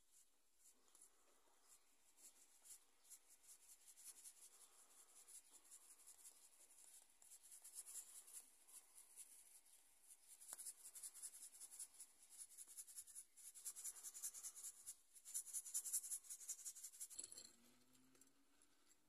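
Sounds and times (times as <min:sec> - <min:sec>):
grit pattering on a board: 0:02.6 - 0:17.3.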